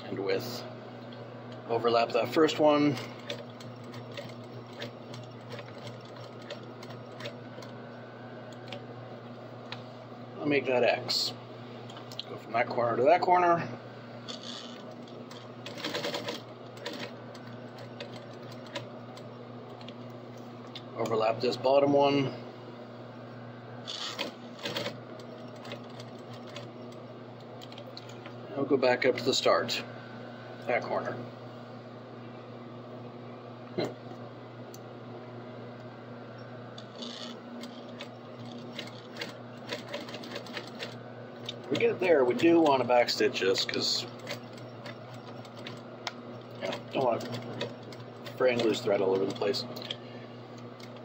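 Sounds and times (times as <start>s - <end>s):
steady machine hum: 0.0s - 51.0s
sewing machine needle strokes: 2.4s - 7.8s, 14.2s - 20.0s, 23.8s - 28.3s, 36.8s - 51.0s
sewing machine clicks: 3.0s - 7.8s, 14.3s - 20.0s, 36.8s - 41.9s.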